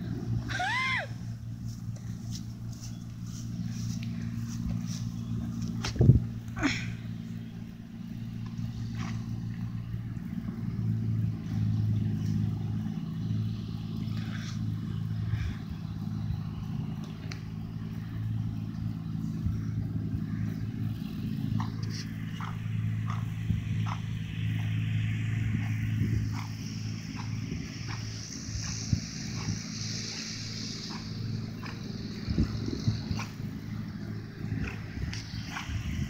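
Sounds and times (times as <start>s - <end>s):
low engine hum: 0.0s - 36.0s.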